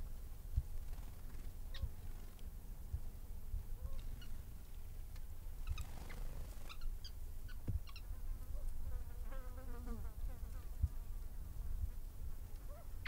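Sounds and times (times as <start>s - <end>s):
small birds chirping: 0.9s - 2.4s, 3.8s - 8.1s.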